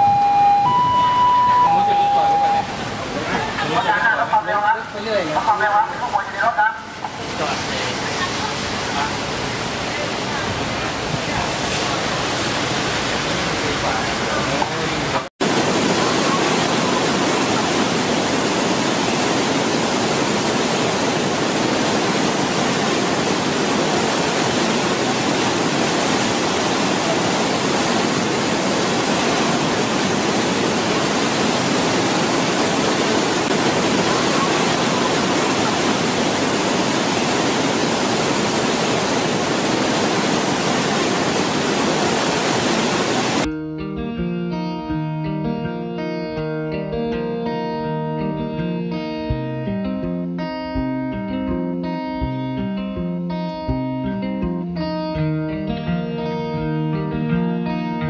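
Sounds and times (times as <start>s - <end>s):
floodwater rushing: 0.0s - 43.5s.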